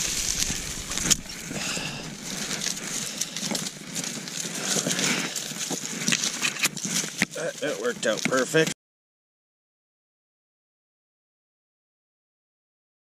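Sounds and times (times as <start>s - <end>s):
jacket fabric rustling: 0.0s - 7.9s
dry grass and snow crunching: 0.0s - 8.7s.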